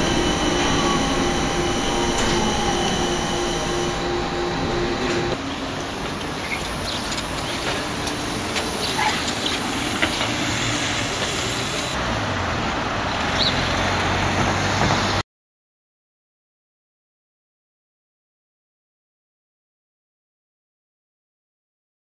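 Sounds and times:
low hum: 0:00.0 - 0:12.0
tyre and traffic noise: 0:00.0 - 0:15.2.

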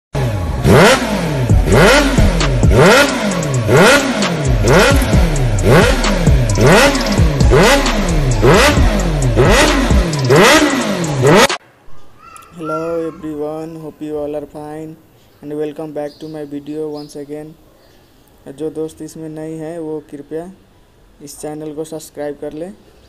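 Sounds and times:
engine revving: 0:00.2 - 0:11.6.

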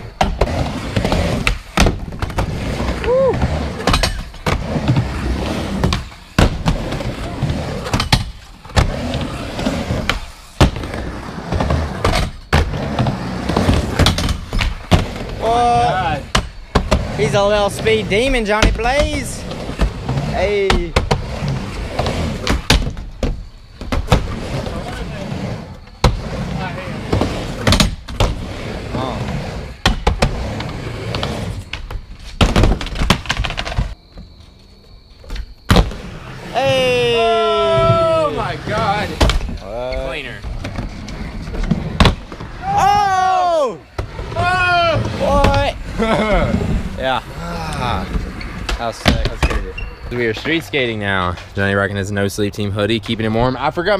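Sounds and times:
skateboard clattering on ramp: 0:00.0 - 0:34.0
skateboard wheels rolling on wood: 0:00.0 - 0:53.9.

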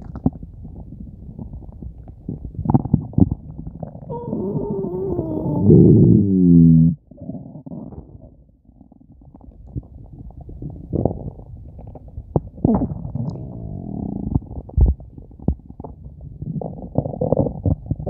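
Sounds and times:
stomach growling and gurgling: 0:00.0 - 0:18.0.

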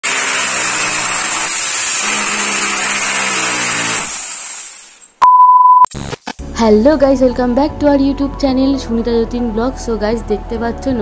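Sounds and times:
electric drill boring into wall: 0:00.0 - 0:05.2
loud steady beep: 0:05.2 - 0:05.9.

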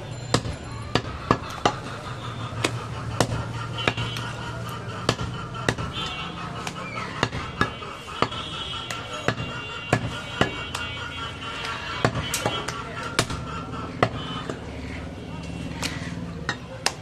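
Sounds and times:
knife chopping meat on wood: 0:00.3 - 0:01.9, 0:02.6 - 0:04.3, 0:05.0 - 0:10.8, 0:11.6 - 0:14.6, 0:15.8 - 0:17.0.

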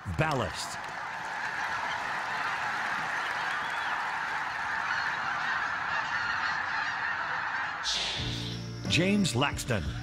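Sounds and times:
flock of geese honking: 0:00.3 - 0:08.2.

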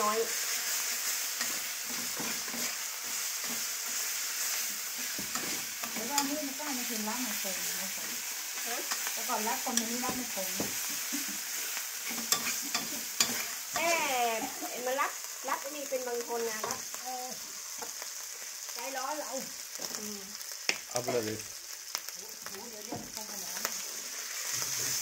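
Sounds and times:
metal utensil scraping wok: 0:00.0 - 0:15.2, 0:23.2 - 0:25.0
paste sizzling in hot oil: 0:00.0 - 0:25.0.

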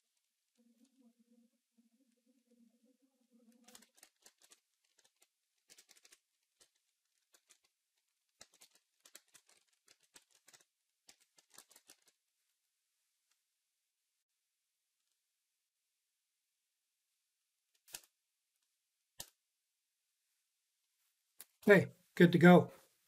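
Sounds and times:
keyboard typing: 0:03.5 - 0:12.2.

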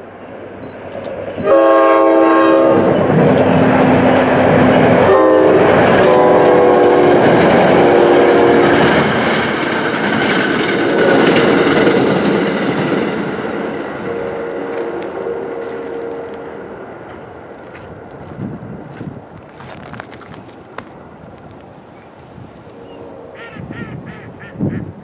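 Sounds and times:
train rumbling on rails: 0:00.0 - 0:25.0
locomotive air horn: 0:01.4 - 0:03.1, 0:04.9 - 0:07.2, 0:14.0 - 0:16.7.

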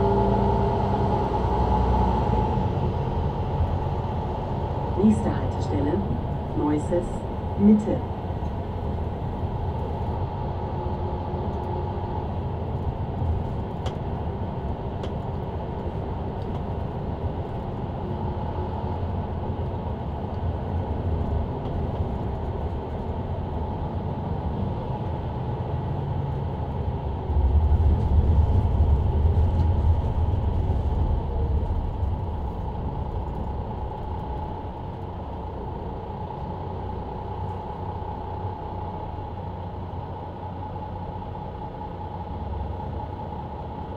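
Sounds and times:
bus engine rumble: 0:00.0 - 0:43.9.

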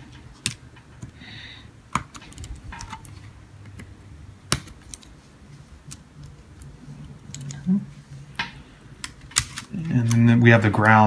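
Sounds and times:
keyboard keys clicking: 0:01.9 - 0:05.1.

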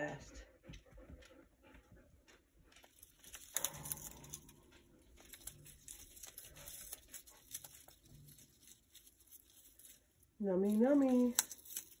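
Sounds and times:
parrot shredding cardboard: 0:05.2 - 0:12.0.

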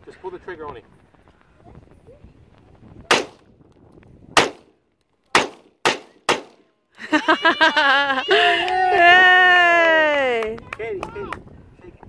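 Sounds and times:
rifle gunshots: 0:03.1 - 0:03.4, 0:04.4 - 0:06.7.

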